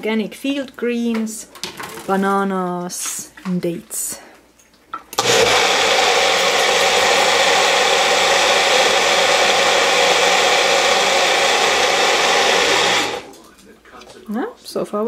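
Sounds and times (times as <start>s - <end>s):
blender running: 5.2s - 13.4s.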